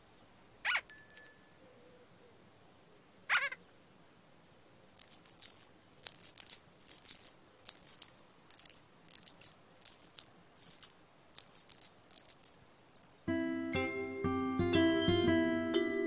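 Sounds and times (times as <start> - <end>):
shaker rattle: 5.0 - 13.3.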